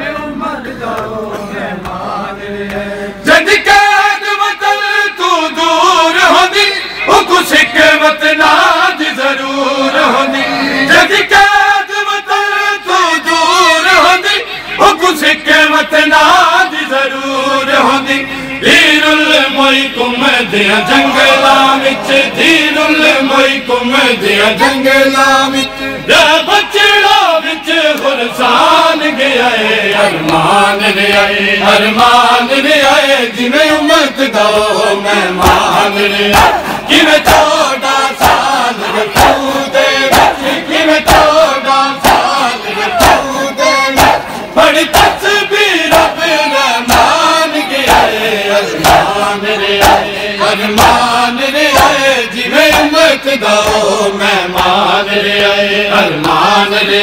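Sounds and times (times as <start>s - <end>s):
men chanting a lament: 0.0s - 57.0s
loud voice chanting close by: 24.1s - 57.0s.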